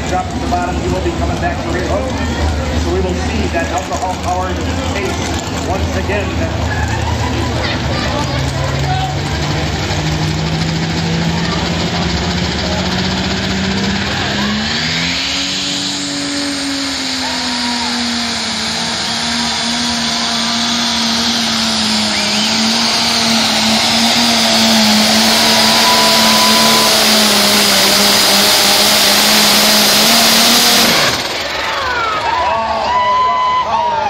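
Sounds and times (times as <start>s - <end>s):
tractor engine running flat out: 0.0s - 34.0s
loud rushing noise: 7.9s - 33.2s.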